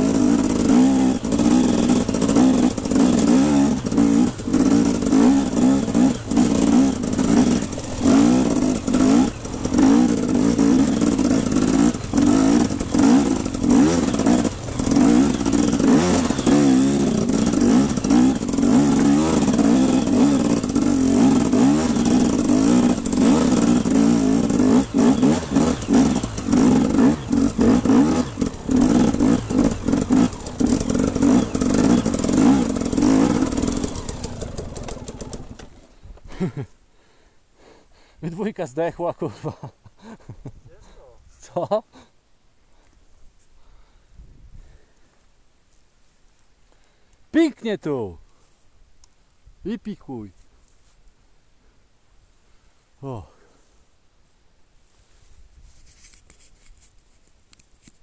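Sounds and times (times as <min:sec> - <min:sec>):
motorbike engine revving: 0:00.0 - 0:36.6.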